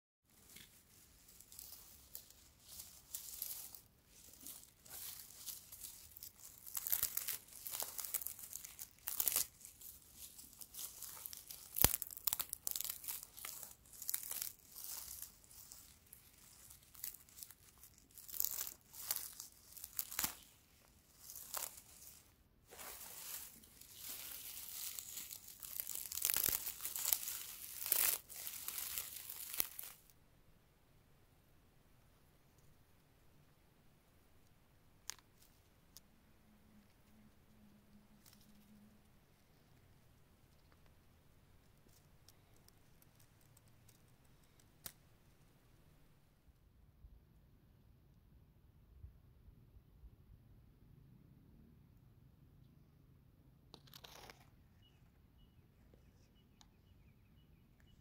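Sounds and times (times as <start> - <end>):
dry grass crackling and rustling: 0.3 - 30.2, 38.1 - 39.8, 41.6 - 45.0.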